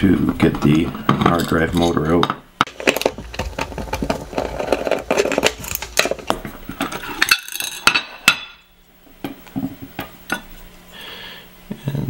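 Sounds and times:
metal parts clicking and clinking: 6.8 - 8.0.

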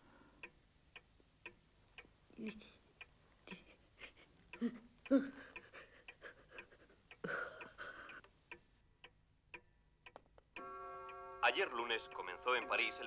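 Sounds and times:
clock ticking: 0.0 - 13.0
old woman sobbing: 3.4 - 8.3
gasping breath: 3.6 - 8.3.

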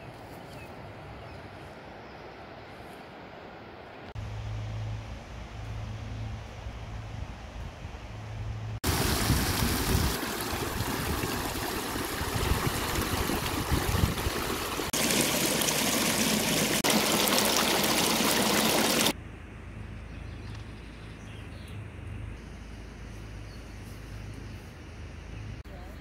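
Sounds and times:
river water rushing over rocks: 8.8 - 19.1.

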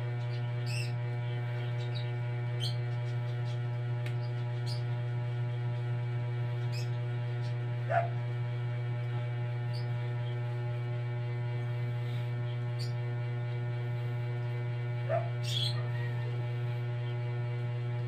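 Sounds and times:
electrical hum: 0.0 - 18.0
dog yip: 7.9 - 8.1, 15.1 - 16.1.

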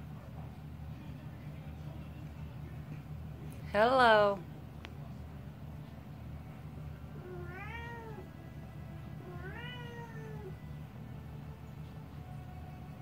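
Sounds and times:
steady low hum: 0.0 - 13.0
cat meowing: 7.2 - 8.3, 9.2 - 10.6.

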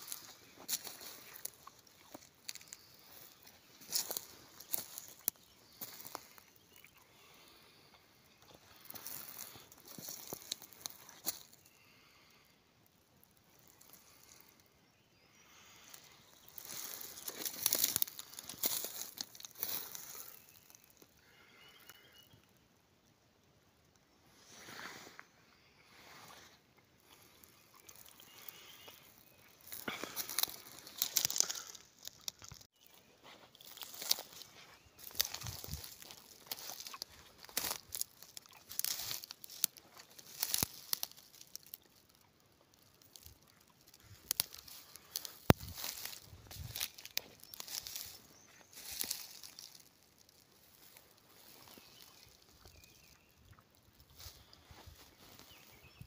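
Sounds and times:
twigs snapping: 0.0 - 6.4, 8.9 - 11.6, 16.0 - 20.6, 27.1 - 32.7, 33.5 - 53.2
dry material crinkling rustle: 0.0 - 6.6, 8.5 - 11.6, 16.0 - 21.1, 27.0 - 56.0.

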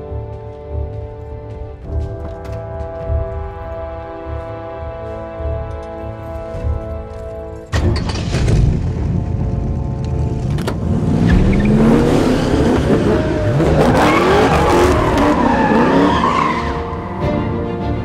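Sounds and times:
car engine rumble: 5.7 - 17.1.

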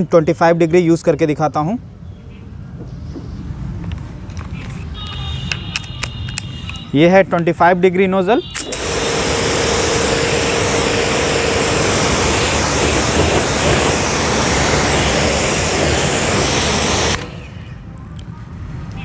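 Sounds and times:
pressure washer spraying: 8.6 - 17.8.

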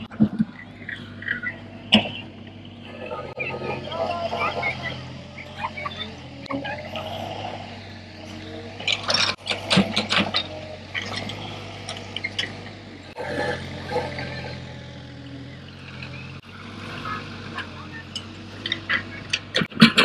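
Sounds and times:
excavator engine running: 0.0 - 20.0
metal clanks and rattles: 8.6 - 14.8.

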